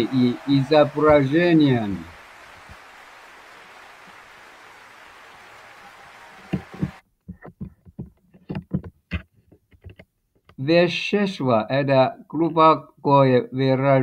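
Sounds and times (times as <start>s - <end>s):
microphone hiss: 0.0s - 7.0s.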